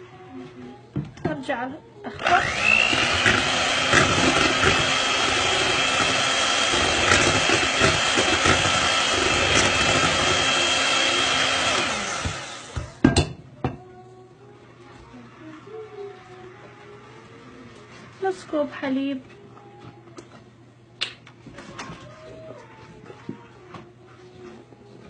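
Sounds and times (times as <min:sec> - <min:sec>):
electric hand mixer whining: 0:02.1 - 0:13.0.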